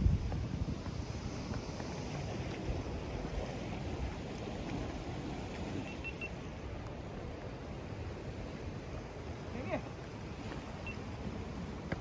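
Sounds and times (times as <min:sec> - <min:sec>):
ocean surf on rocks: 0:00.0 - 0:12.0
wind rumble on microphone: 0:00.0 - 0:12.0
faint short high beeps: 0:05.8 - 0:06.4.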